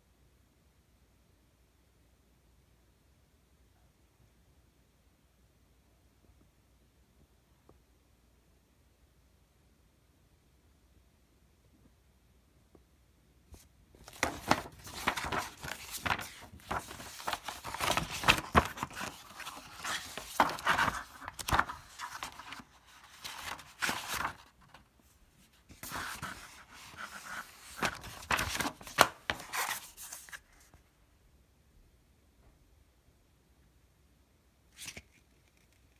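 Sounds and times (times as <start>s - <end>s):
pages flipping: 13.6s - 30.8s, 34.8s - 35.9s
paper rustling: 14.0s - 30.8s.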